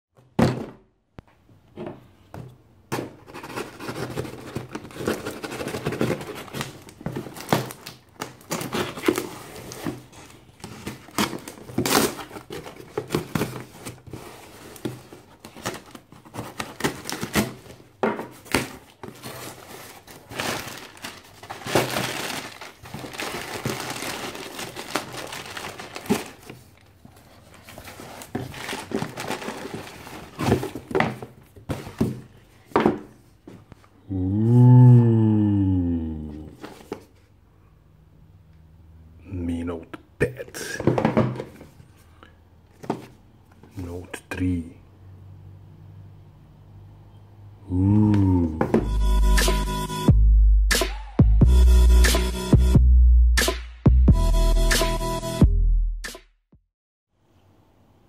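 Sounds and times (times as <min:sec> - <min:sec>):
cardboard and plastic rustling: 0:01.8 - 0:34.0, 0:36.5 - 0:37.4, 0:40.8 - 0:42.1, 0:42.7 - 0:43.9
packing tape tearing: 0:10.7 - 0:14.0, 0:18.5 - 0:26.8, 0:27.6 - 0:30.8.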